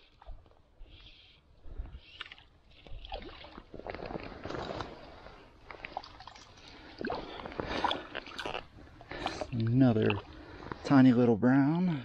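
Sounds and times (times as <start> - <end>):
water splashing and sloshing: 1.7 - 11.1.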